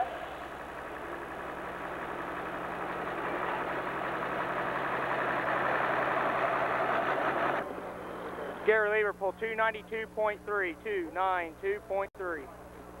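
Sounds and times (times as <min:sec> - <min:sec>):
tractor diesel engine running hard: 0:00.0 - 0:08.6.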